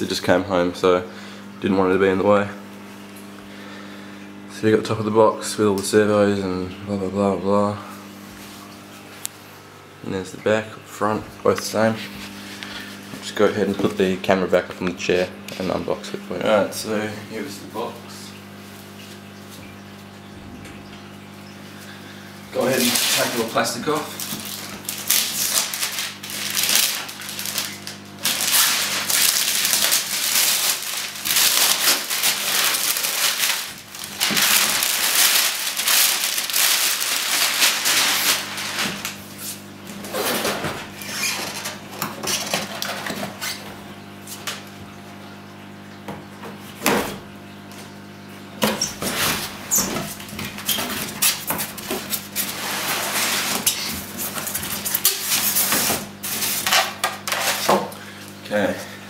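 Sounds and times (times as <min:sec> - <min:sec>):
shrink-wrap crinkling: 0:22.5 - 0:43.6, 0:49.0 - 0:57.7
rustling and scraping: 0:24.2 - 0:43.7, 0:48.9 - 0:57.7.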